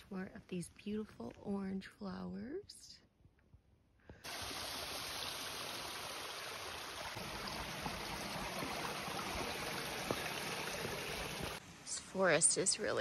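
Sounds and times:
creek rushing over rocks: 4.3s - 11.6s
footsteps on wooden boards: 8.5s - 11.0s.

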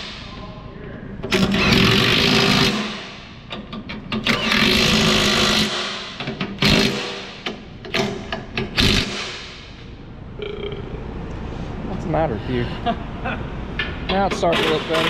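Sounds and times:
impact wrench running bolts: 1.2s - 9.8s, 13.8s - 15.0s.

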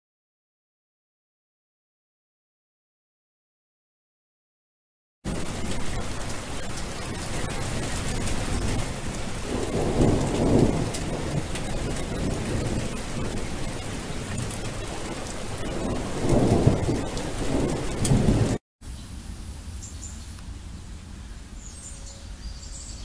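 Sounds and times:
low rolls of thunder: 5.3s - 18.6s
steady rain falling: 5.3s - 18.6s.

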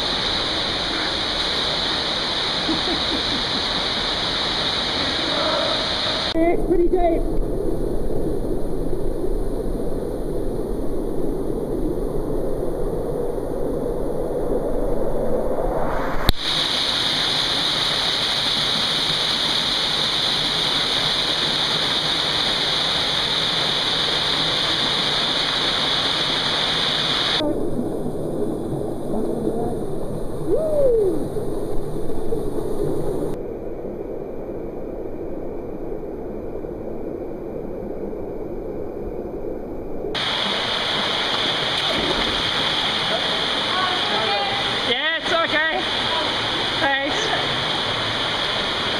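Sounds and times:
creek water rushing over rocks: 0.0s - 6.4s, 16.3s - 27.4s, 40.2s - 48.9s.

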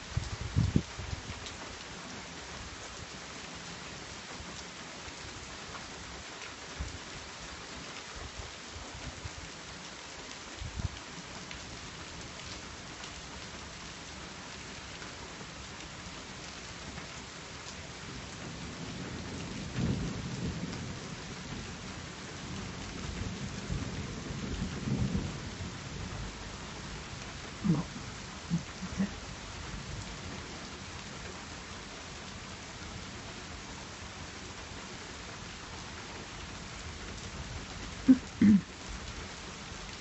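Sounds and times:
rain hissing: 12.6s - 40.0s.

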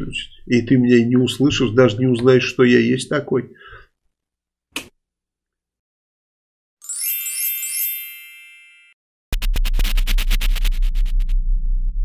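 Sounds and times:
fast electronic beat with bass: 9.4s - 11.9s.

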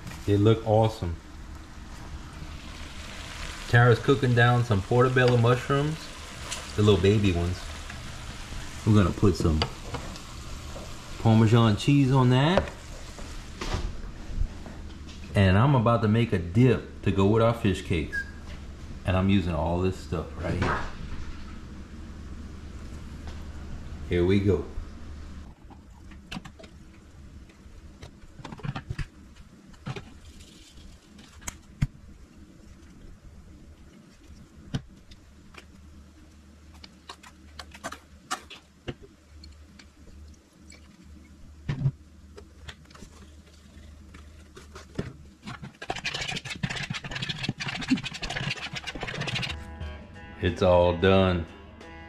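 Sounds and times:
steady low hum: 0.0s - 52.0s
kitchen utensils clicking and scraping: 45.5s - 49.6s.

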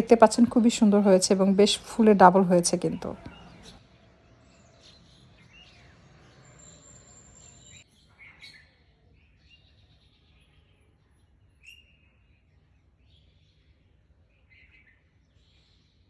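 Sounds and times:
bird chirps: 2.7s - 3.8s, 4.4s - 16.0s.

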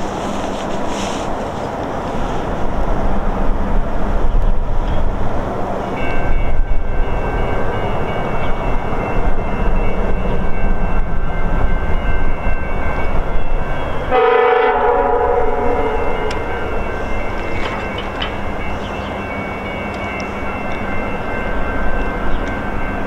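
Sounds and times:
diesel locomotive rumble: 0.0s - 23.0s
locomotive air horn blast: 14.1s - 16.7s.

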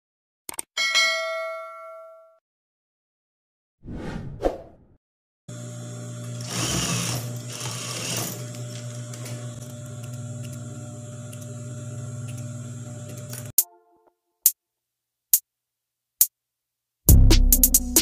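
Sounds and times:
sewing machine stitching: 5.5s - 13.5s.

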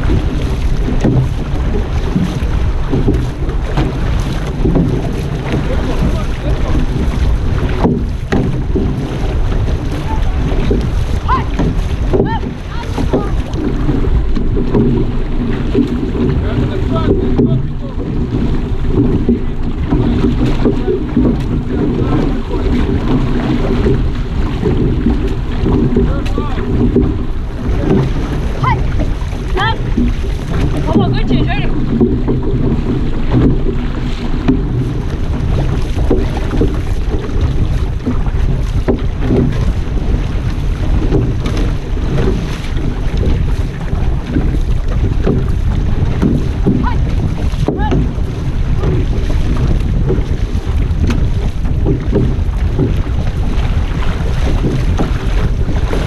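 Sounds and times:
paddles splashing: 0.0s - 56.0s
water rushing along hull: 0.0s - 56.0s
wind buffeting microphone: 0.0s - 56.0s.

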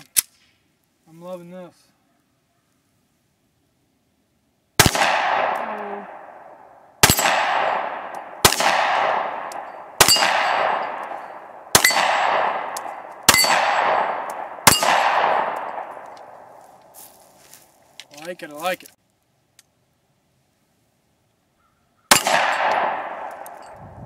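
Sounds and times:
pistol shots: 4.8s - 16.1s, 22.1s - 23.6s.

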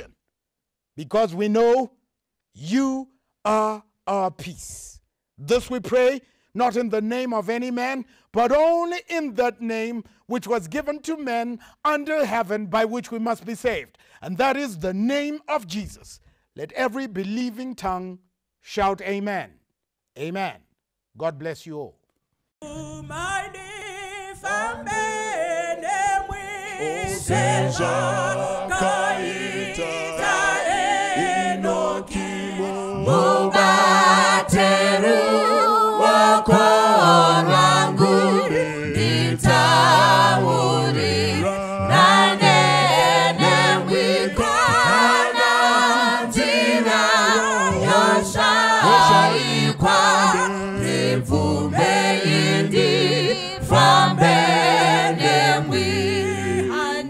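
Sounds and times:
choir singing a hymn: 22.9s - 57.0s.

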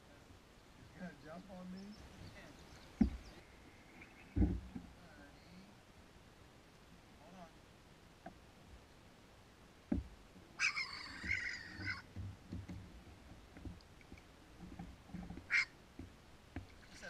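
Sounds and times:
kayak paddle strokes: 9.8s - 17.0s
harsh animal call: 10.6s - 12.1s, 15.4s - 15.7s.

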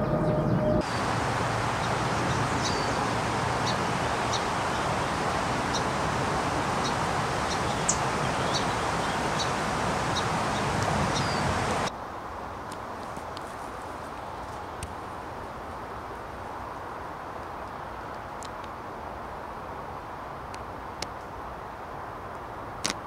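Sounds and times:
songbird chip calls: 0.0s - 11.9s
rushing outdoor background noise: 0.0s - 23.0s.

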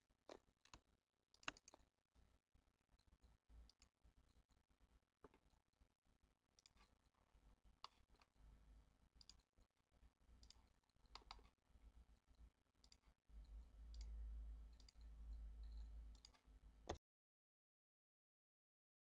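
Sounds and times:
computer mouse clicks: 0.3s - 1.9s, 3.6s - 4.4s, 6.6s - 7.0s, 7.8s - 8.4s, 9.2s - 9.5s, 10.4s - 11.6s, 12.8s - 17.0s.

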